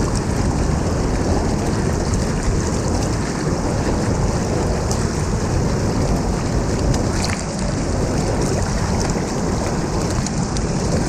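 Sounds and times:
stream rushing over stones: 0.0s - 11.0s
water splashes: 0.0s - 11.0s.

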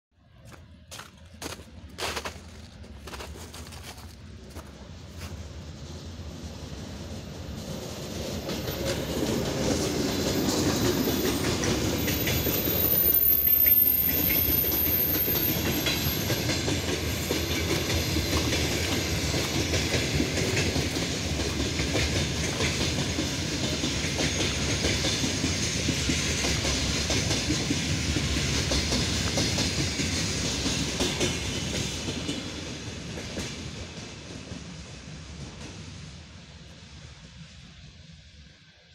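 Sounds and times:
train rumbling past: 0.2s - 38.9s
wheels clattering on rails: 7.3s - 35.9s.

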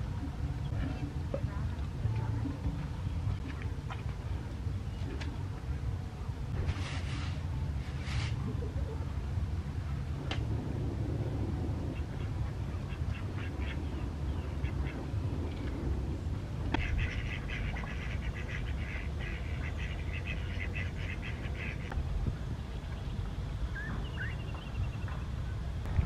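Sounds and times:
steady low rumble: 0.0s - 26.0s
ducks quacking: 11.9s - 15.3s, 16.7s - 21.9s.

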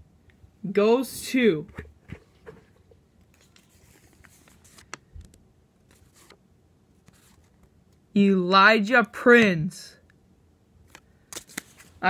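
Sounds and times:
soft paper crackles: 2.2s - 8.0s, 10.8s - 12.0s
paper crinkling and rustling: 3.3s - 6.4s, 7.0s - 7.7s, 10.9s - 12.0s.

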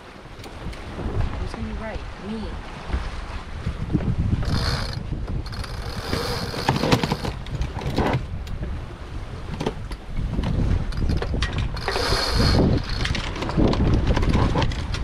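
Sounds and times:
wind and sea rushing: 0.0s - 15.0s
hardware clicking and rattling: 4.5s - 8.2s, 10.9s - 15.0s.

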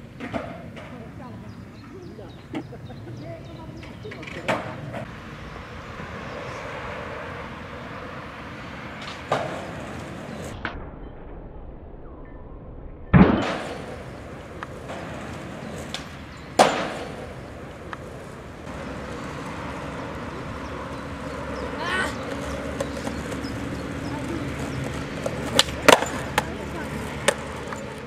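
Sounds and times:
skateboard clacking on hard ground: 0.1s - 1.2s, 3.7s - 5.1s, 9.0s - 10.4s, 13.4s - 28.0s
skateboard landing slap: 9.0s - 9.8s, 13.2s - 18.2s, 25.2s - 26.5s.

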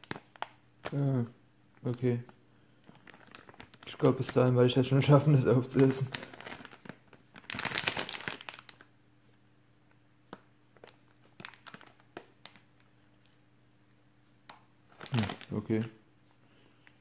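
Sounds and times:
plastic packet crinkling: 0.0s - 1.1s, 1.8s - 8.9s, 10.8s - 13.3s, 14.9s - 16.0s.

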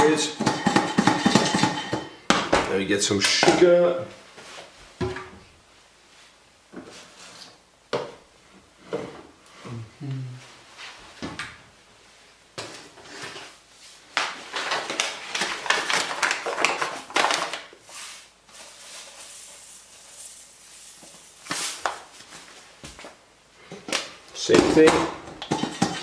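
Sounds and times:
popcorn rustling and crackling in a pan: 12.6s - 26.0s.

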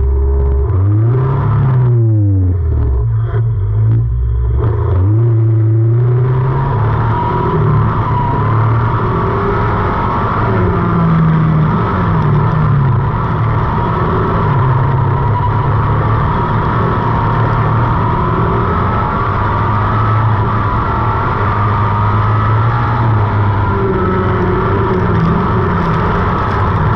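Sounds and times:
racing car engine under load: 0.0s - 26.9s
rush of tyres dirt and wind: 0.0s - 26.9s.

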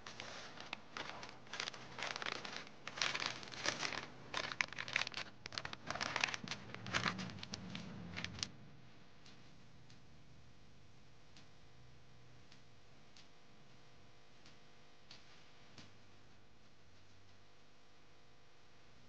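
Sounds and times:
parchment paper crinkling: 0.0s - 8.5s.

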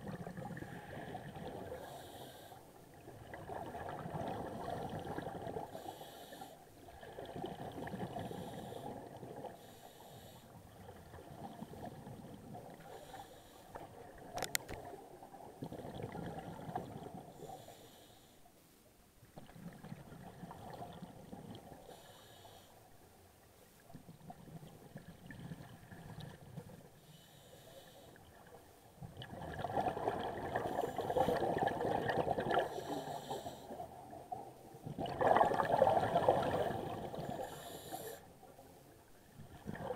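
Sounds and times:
exhaled bubbles gurgling: 0.0s - 2.2s, 2.9s - 6.0s, 6.8s - 9.7s, 10.6s - 17.5s, 19.4s - 22.1s, 23.9s - 26.9s, 28.3s - 38.1s, 39.3s - 39.9s
regulator inhale hiss: 1.7s - 2.8s, 5.7s - 6.7s, 8.3s - 10.6s, 12.8s - 13.8s, 17.3s - 18.5s, 21.8s - 22.9s, 27.0s - 28.3s, 32.7s - 33.9s, 37.2s - 38.3s.

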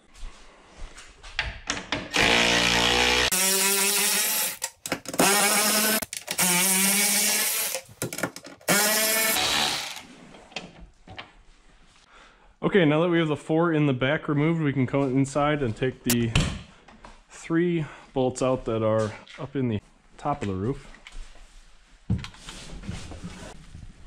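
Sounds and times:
cordless electric ratchet spinning: 2.1s - 7.9s, 8.6s - 10.0s.

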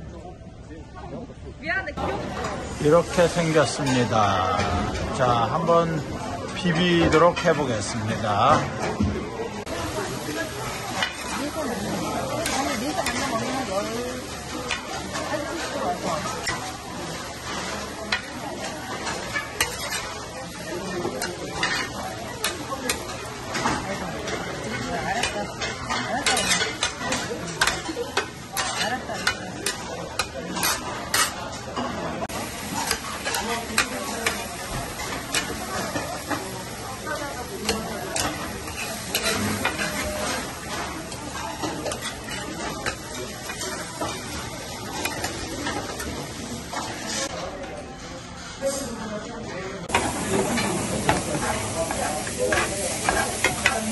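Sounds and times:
food sizzling in metal pan: 2.0s - 8.7s, 9.6s - 47.4s, 49.8s - 53.9s
metal spatula scraping pan: 24.7s - 27.8s, 37.6s - 40.9s
spatula scraping metal pan: 37.6s - 40.5s.

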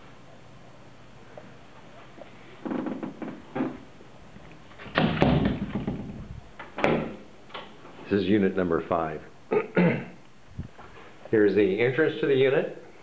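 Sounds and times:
heavy door thud: 4.9s - 7.2s.

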